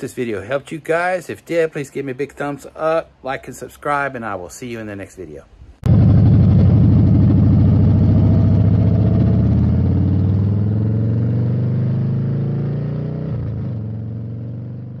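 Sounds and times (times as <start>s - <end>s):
engine running: 5.8s - 12.2s.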